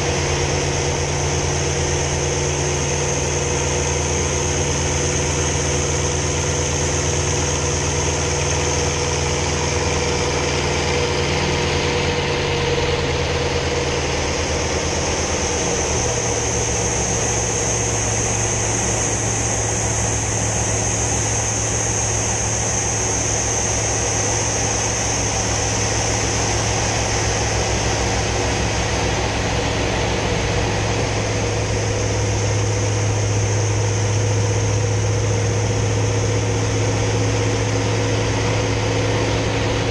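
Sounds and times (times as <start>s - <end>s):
radial aircraft engine running: 0.0s - 39.9s.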